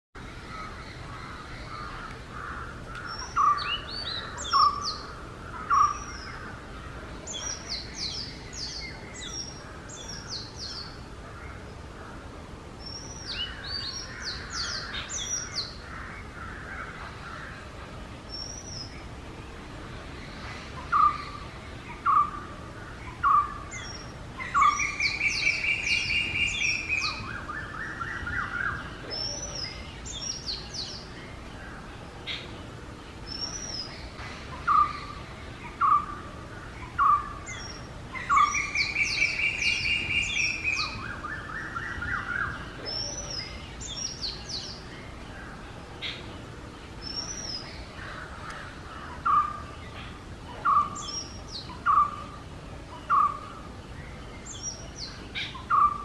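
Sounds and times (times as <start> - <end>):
bird singing whistled notes: 3.1 - 5.0, 23.2 - 31.0, 36.8 - 44.8, 50.6 - 56.0.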